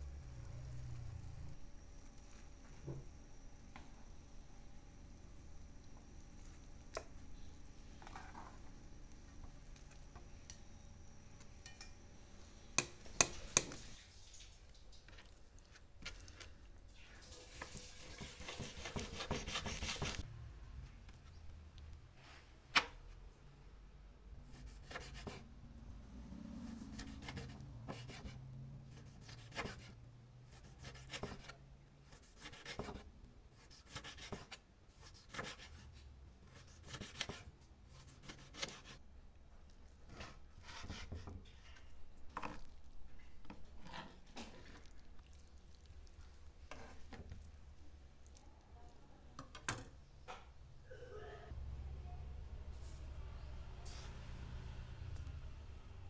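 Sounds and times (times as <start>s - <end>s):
knife slicing meat on cutting board: 18.2s - 20.2s, 33.6s - 35.8s.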